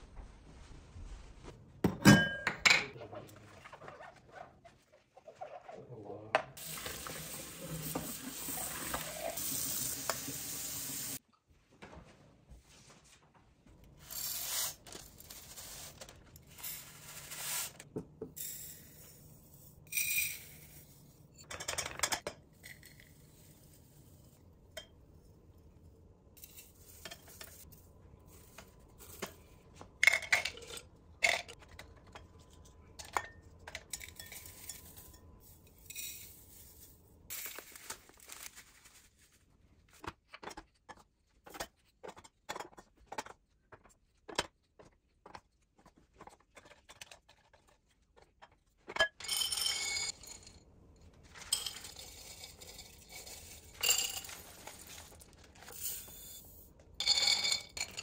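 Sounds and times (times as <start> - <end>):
glass clinking: 1.9 - 2.9
dried herbs rustling into jars: 51.2 - 58.0.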